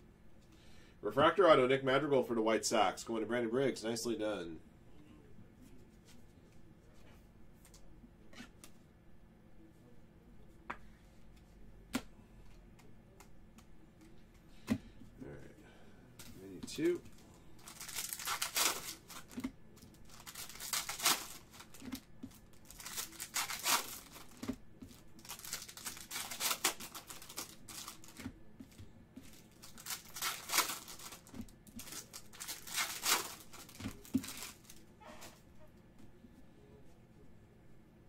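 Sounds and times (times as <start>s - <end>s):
foil wrappers tearing and crinkling: 17.6s - 28.3s, 29.2s - 34.8s.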